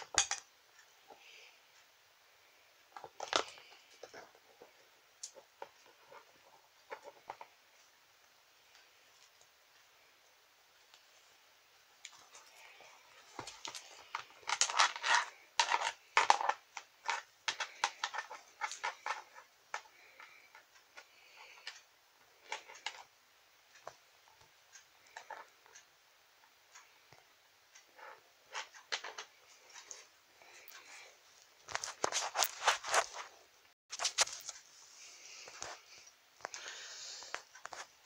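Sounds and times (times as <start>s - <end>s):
toys clicking and rustling: 2.9s - 7.5s, 12.0s - 23.1s, 27.8s - 34.6s.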